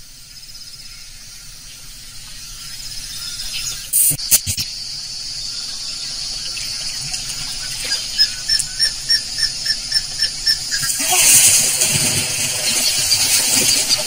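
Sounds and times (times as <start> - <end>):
high insect hiss: 0.0 - 14.0.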